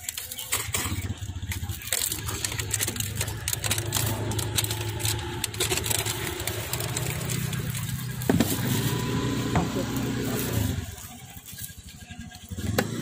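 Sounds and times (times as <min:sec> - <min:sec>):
light clicking and clatter: 0:00.0 - 0:08.6
small engine idling: 0:00.0 - 0:13.0.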